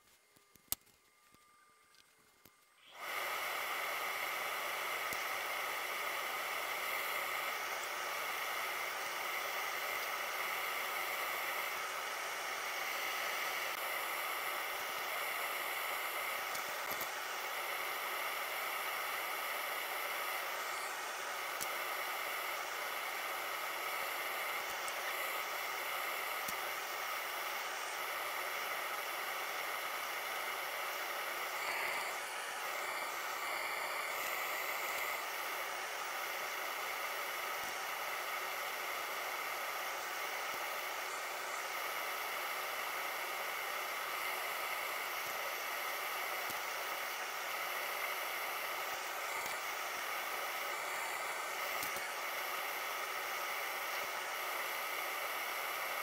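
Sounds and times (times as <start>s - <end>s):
steady hiss: 0.0s - 56.0s
faint high tones: 0.1s - 3.0s.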